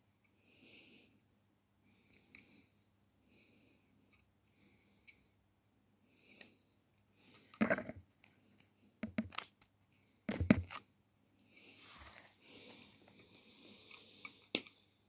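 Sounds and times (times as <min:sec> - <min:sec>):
soft rustle: 0:11.6 - 0:13.1.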